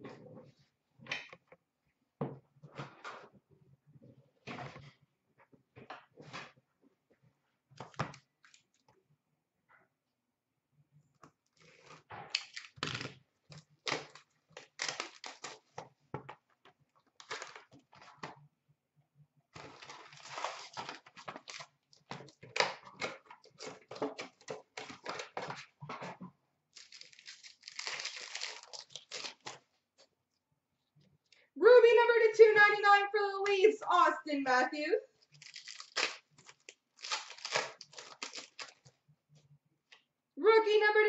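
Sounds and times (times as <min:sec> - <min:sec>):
wrappers crinkling and ripping: 0:11.6 - 0:15.8, 0:19.6 - 0:25.4, 0:26.7 - 0:29.6, 0:35.2 - 0:39.0.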